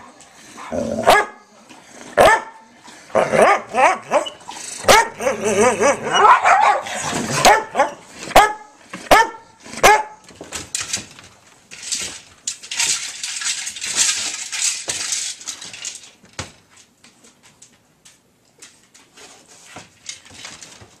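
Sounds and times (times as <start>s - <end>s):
dog barking and snarling: 0.6s - 1.4s, 3.1s - 10.2s.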